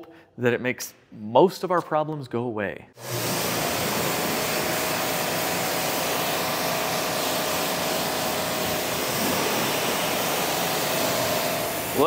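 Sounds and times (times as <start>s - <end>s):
pressure washer spraying water: 3.0s - 12.0s.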